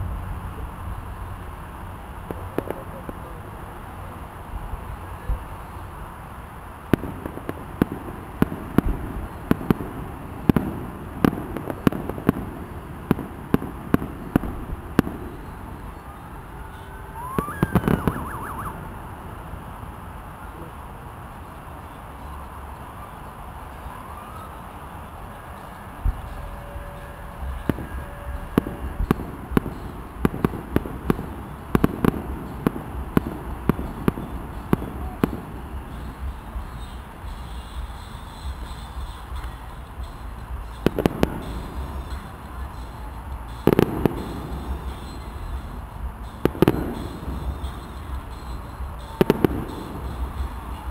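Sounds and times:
fireworks bangs: 0.0 - 21.5, 24.9 - 50.9
rising whistle-like tone: 15.4 - 19.0
wavering tone: 15.4 - 19.1.

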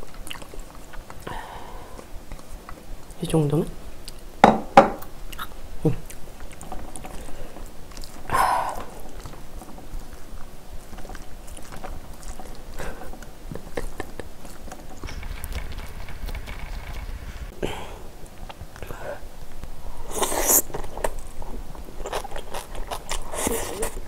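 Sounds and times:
chewing and mouth sounds: 0.0 - 1.3, 5.3 - 15.3, 20.2 - 24.0.

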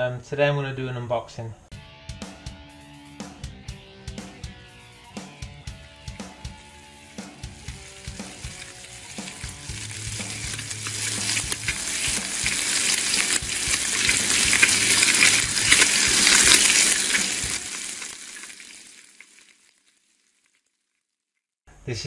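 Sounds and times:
frying sizzle: 6.0 - 20.2.

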